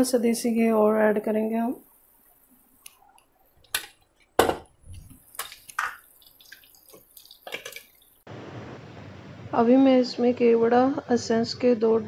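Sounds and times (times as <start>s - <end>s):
ghee crackling in a pan: 2.2s - 8.2s.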